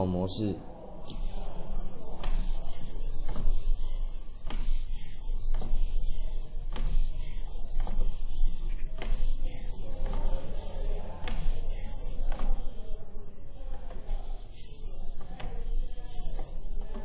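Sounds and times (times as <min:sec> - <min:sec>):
metal feet tapping on table: 0:01.1 - 0:12.7
servo motors whirring: 0:01.1 - 0:17.0.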